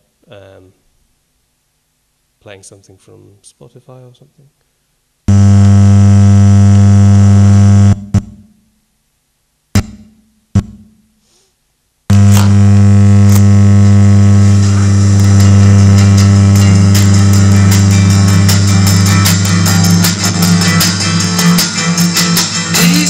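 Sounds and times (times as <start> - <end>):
loud electrical buzz: 5.3 - 8.2, 12.1 - 23.0
clicks and pops: 12.1 - 13.5.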